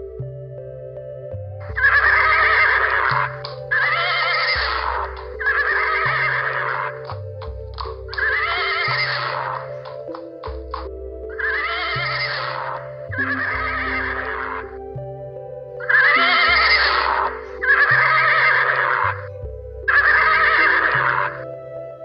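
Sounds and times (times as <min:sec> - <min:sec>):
ambient background music: 0:00.0 - 0:22.0
horse whinnying: 0:01.7 - 0:10.6, 0:11.3 - 0:14.7, 0:15.8 - 0:19.3, 0:19.9 - 0:21.4.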